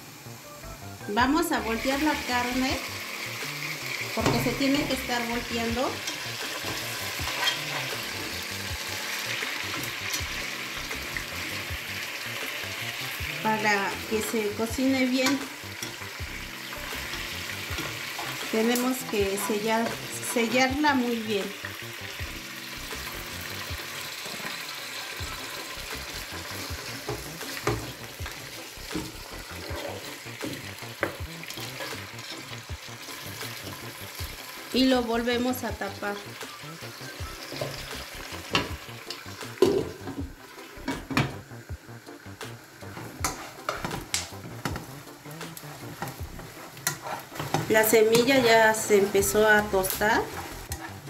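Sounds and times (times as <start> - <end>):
pork sizzling in lard: 0.0 - 51.0
plastic spatula scraping pot: 45.8 - 51.0.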